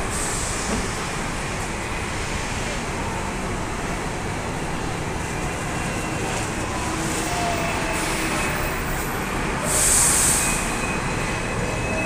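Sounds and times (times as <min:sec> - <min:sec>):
bus driving past: 0:00.0 - 0:12.0
street traffic noise: 0:00.0 - 0:12.0.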